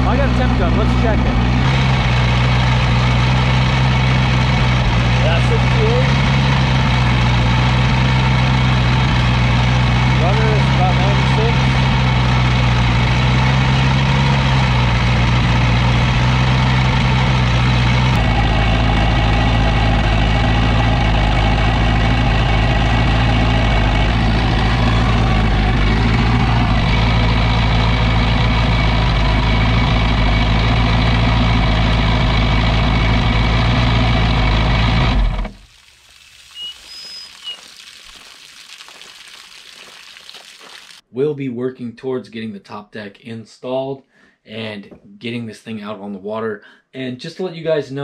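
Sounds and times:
engine idling: 0.0s - 35.6s.

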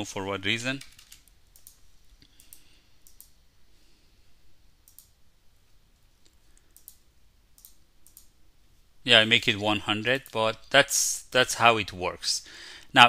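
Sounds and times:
mouse and keyboard clicks: 4.9s - 5.1s.

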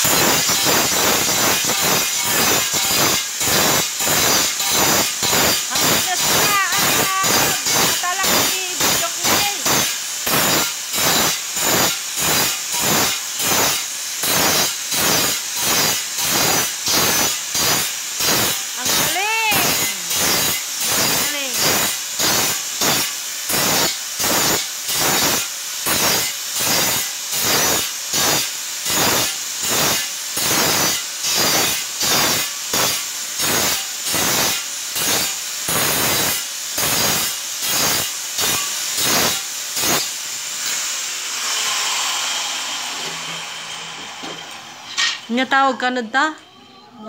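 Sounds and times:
angle grinder cutting tile: 0.0s - 46.0s.

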